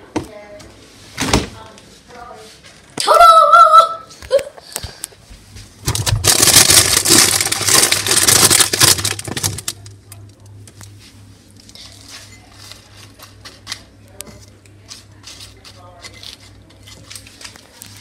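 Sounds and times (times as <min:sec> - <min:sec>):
plastic packet crinkling: 0:05.9 - 0:10.0.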